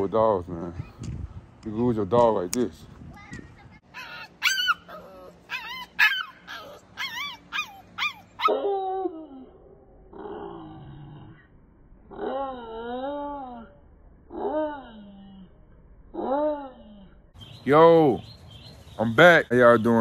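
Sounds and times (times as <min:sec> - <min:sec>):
puppy yipping: 0:03.9 - 0:08.6
puppy howling: 0:03.9 - 0:10.8, 0:12.1 - 0:15.4.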